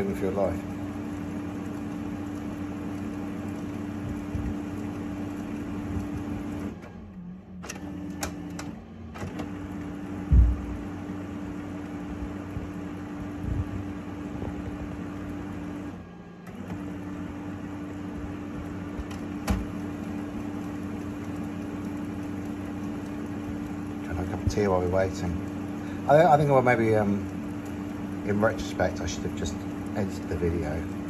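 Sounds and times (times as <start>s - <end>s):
printer motors and fan humming: 0.0s - 31.0s
printer clicks: 7.6s - 9.6s, 19.0s - 19.8s
low thump: 10.3s - 10.8s.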